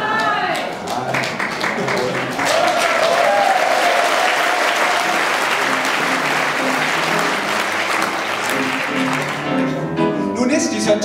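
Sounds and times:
audience applauding: 0:00.1 - 0:09.8
piano notes: 0:04.9 - 0:11.0.

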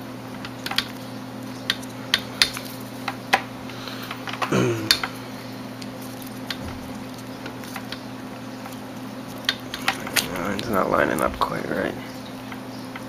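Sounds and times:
person murmuring: 0:04.5 - 0:05.1.

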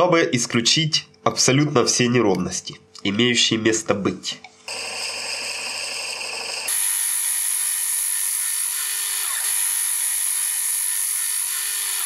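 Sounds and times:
lathe whining: 0:04.7 - 0:12.0
turning tool cutting wood: 0:04.7 - 0:12.0.

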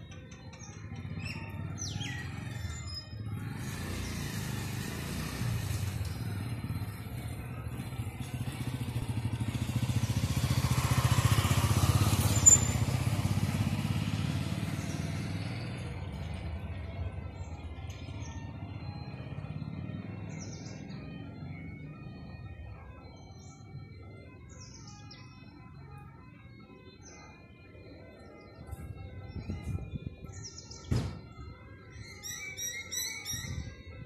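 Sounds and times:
vehicle engine passing by: 0:01.0 - 0:22.6.

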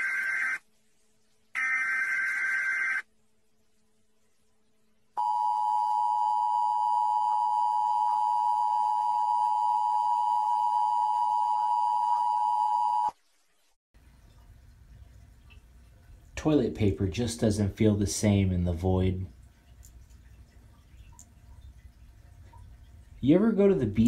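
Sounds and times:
long steady electronic tone: 0:05.2 - 0:13.2.

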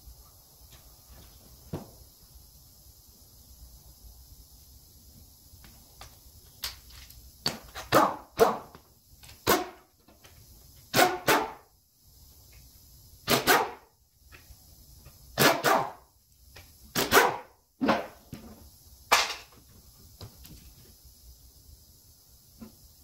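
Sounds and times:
dog barking: 0:07.9 - 0:08.7.

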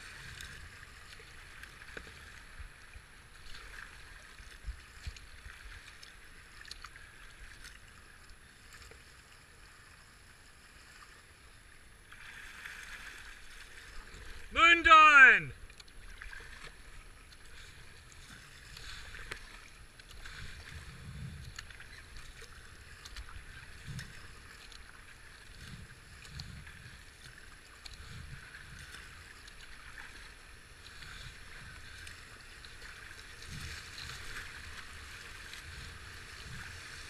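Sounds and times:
paddle strokes splashing: 0:00.0 - 0:37.0
river water rushing: 0:12.2 - 0:15.5.

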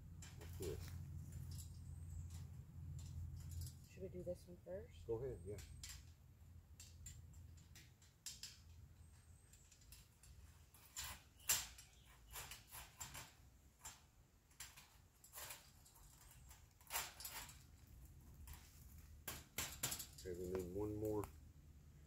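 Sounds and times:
wire fence panels clicking and rattling: 0:00.0 - 0:04.1, 0:05.2 - 0:21.5.

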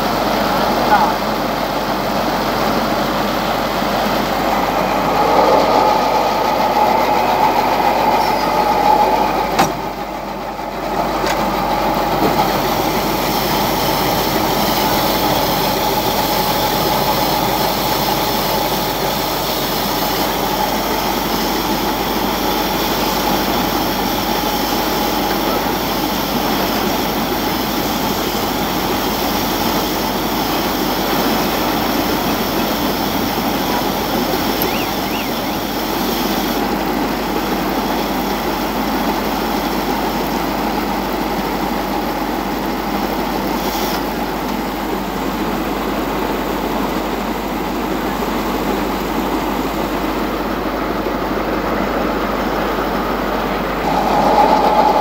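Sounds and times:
baler-wrapper machine running: 0:00.0 - 0:55.0
high hiss: 0:02.3 - 0:40.3.

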